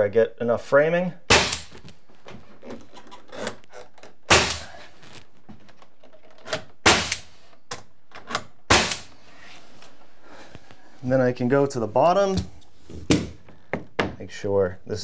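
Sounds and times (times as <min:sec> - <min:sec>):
pneumatic nailer firing: 0:01.3 - 0:01.8, 0:04.3 - 0:04.7, 0:06.6 - 0:07.4, 0:08.6 - 0:09.2.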